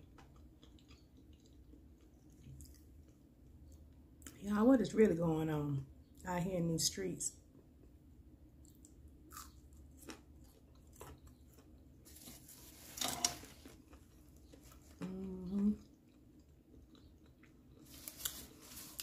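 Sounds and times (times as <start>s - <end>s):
person chewing crunchy food: 0.0s - 4.3s, 7.8s - 19.0s
person humming mm: 15.0s - 15.8s.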